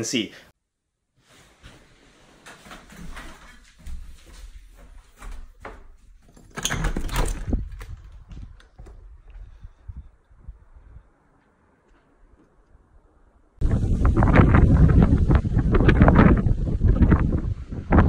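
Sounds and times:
door opening with knocks: 5.2 - 9.0
glass-panelled door rattling: 6.2 - 8.9.

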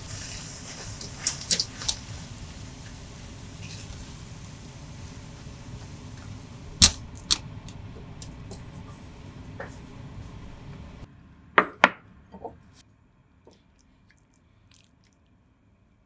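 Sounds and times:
food sizzling in a frying pan: 0.0 - 6.9.

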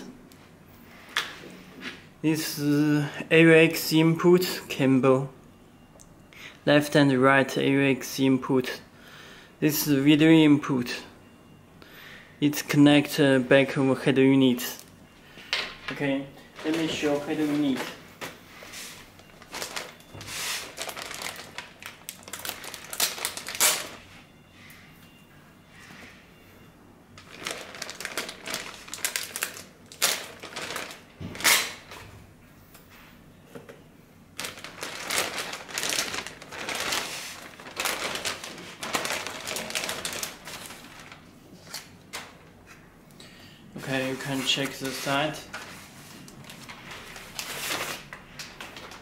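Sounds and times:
plastic bag crinkling: 16.6 - 18.0, 19.0 - 24.1, 27.2 - 32.0, 34.4 - 42.3, 44.0 - 49.0.

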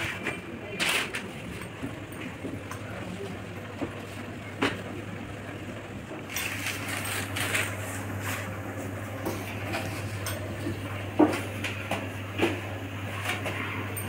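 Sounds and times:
steady low hum: 0.0 - 14.0
paper rustling and crinkling: 6.3 - 10.2.

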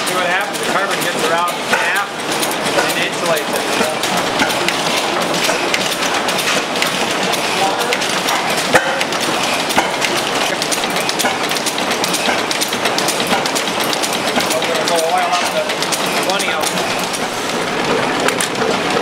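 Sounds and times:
gas engines ticking and knocking: 0.0 - 19.0.

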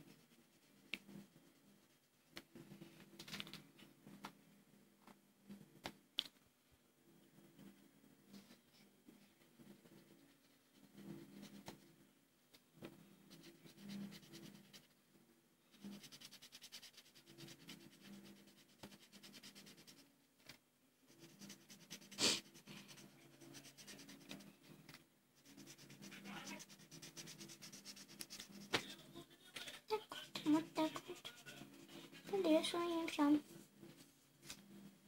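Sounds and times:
marker scratching on paper: 13.3 - 14.9, 15.7 - 20.0, 21.1 - 24.7, 25.4 - 28.8, 30.0 - 32.9.

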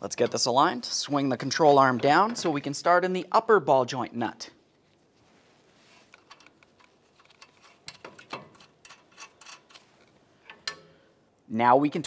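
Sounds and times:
small metallic clicks: 6.1 - 11.0.

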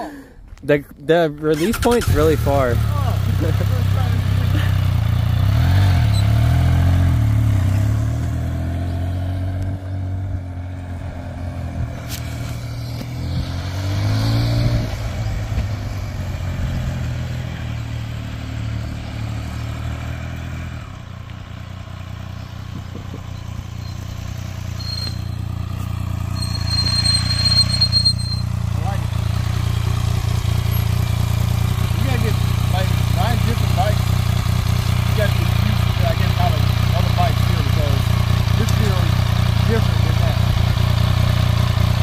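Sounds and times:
motorcycle engine riding off: 1.5 - 42.0
thin high squeal: 23.2 - 28.6.

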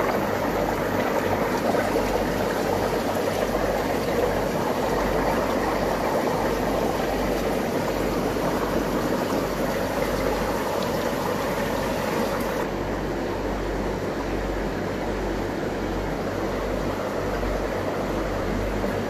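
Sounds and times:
aquarium pumps bubbling: 0.0 - 19.0
low steady hum: 0.0 - 19.0.

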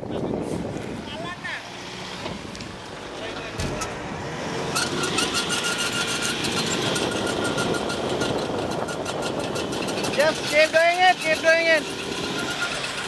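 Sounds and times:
motor running with rapid clatter: 5.0 - 13.0.

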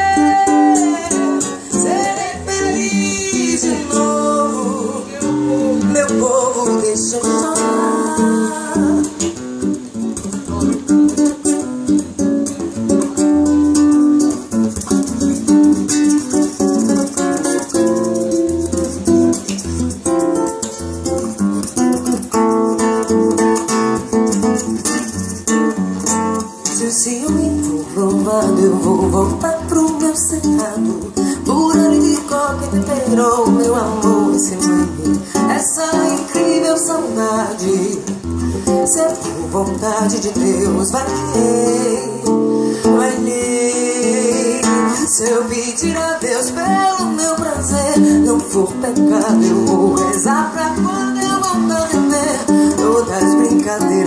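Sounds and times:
woman singing wordless melody: 0.0 - 11.6, 26.0 - 54.0
acoustic guitar: 0.0 - 54.0
shaker rhythm: 5.9 - 54.0.

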